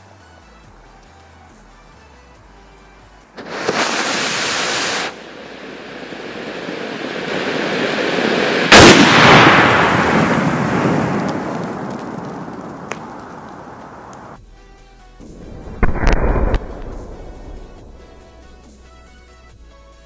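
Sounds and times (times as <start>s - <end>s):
sharp firework bang: 3.4s - 5.2s, 6.0s - 14.3s, 15.3s - 18.7s
firework spraying sparks hiss: 3.4s - 14.4s, 15.2s - 18.8s.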